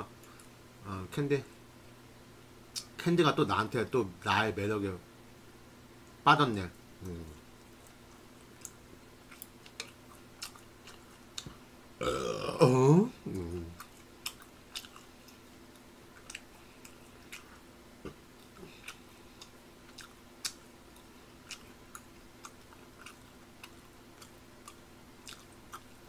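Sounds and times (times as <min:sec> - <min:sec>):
low steady hum: 0:00.0 - 0:26.0
mouth chewing clicks and smacks: 0:07.0 - 0:11.6, 0:13.8 - 0:26.0.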